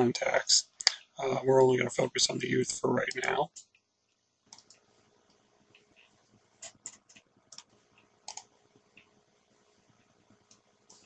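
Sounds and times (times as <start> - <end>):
faint steady hum: 0.0 - 11.0
keyboard typing: 4.5 - 4.8, 5.7 - 9.1.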